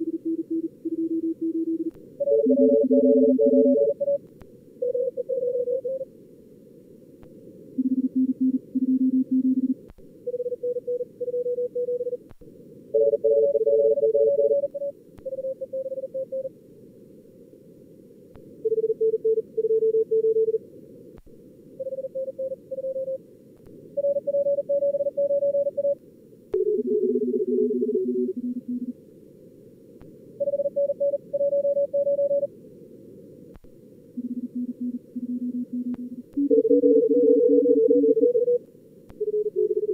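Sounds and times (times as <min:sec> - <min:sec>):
morse code tones: 0:01.1 - 0:04.2, 0:34.2 - 0:38.6.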